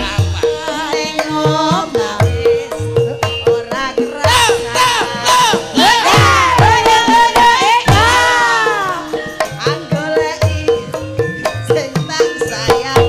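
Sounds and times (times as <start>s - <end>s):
ringing metallophone tones: 0.0s - 13.0s
voices singing loudly: 4.2s - 9.3s.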